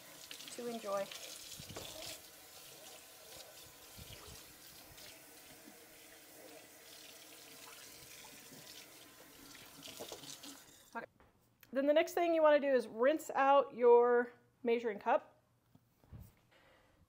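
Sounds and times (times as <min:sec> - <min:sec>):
faucet water running into sink: 0:00.0 - 0:11.0.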